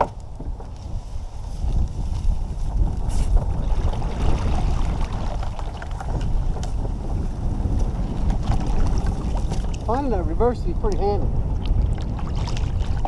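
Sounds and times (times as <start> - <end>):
reeds rustling: 0.0 - 10.0
wind rumbling on microphone: 0.0 - 13.0.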